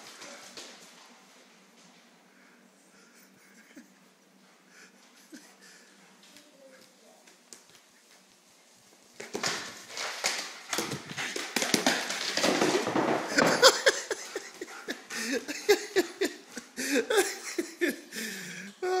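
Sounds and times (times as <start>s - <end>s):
dog claws scrabbling on wood floor: 8.9s - 15.1s.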